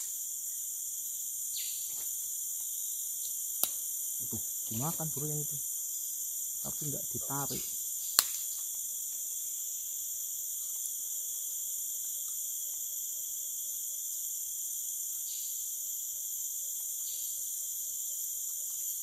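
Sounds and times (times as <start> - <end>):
insect chorus drone: 0.0 - 19.0.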